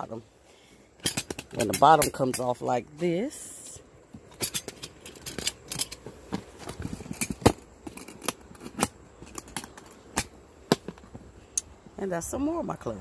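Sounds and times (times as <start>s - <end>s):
metal latches clicking open: 1.0s - 2.5s, 4.2s - 11.0s.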